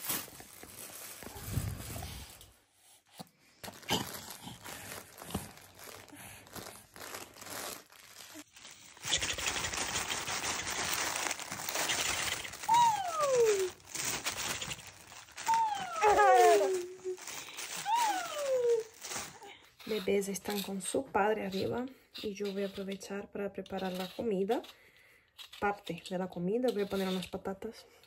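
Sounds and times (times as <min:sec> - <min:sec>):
fabric toys crinkling: 0:00.0 - 0:02.6, 0:03.6 - 0:21.8
baby squealing: 0:11.7 - 0:13.8, 0:14.5 - 0:17.2, 0:17.8 - 0:19.0.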